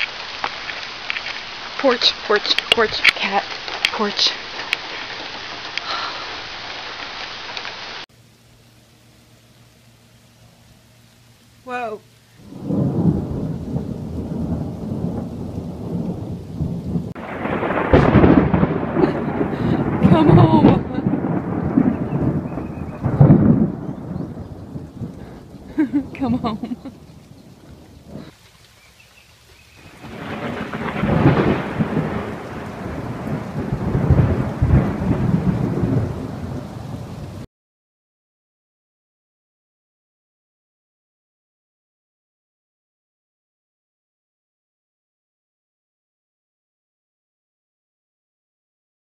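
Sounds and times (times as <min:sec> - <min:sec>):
hissing rain: 0:00.0 - 0:37.5
thunder rumbling: 0:11.7 - 0:28.4, 0:29.6 - 0:37.5
strong wind: 0:12.4 - 0:28.3.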